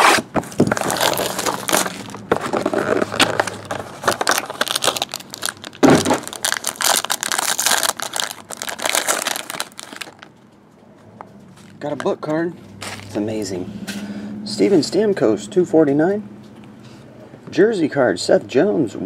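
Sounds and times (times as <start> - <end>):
shrink wrap crinkling: 0.4 - 10.4.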